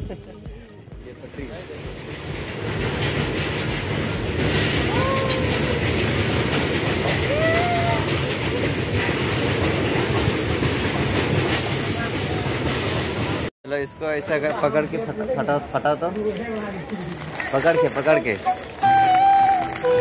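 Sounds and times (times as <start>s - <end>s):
freight train wheels rumbling on rails: 0.3s - 13.5s.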